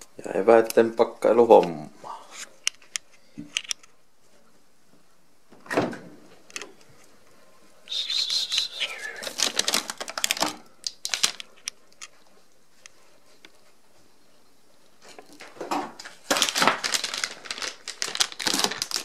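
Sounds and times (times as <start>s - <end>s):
plastic tubs clattering and rustling: 9.2s - 11.5s, 15.0s - 19.0s.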